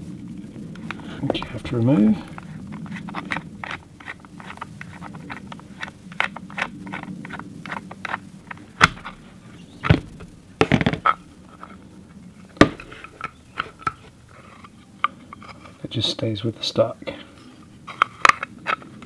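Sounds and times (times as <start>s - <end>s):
wooden stock clacking on metal: 0.9s - 11.8s.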